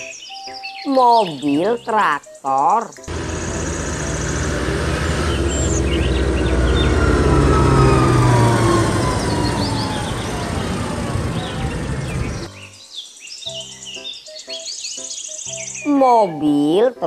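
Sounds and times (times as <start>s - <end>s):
faint bird chirps: 0.0s - 8.0s
tractor diesel engine driving past: 3.1s - 12.5s.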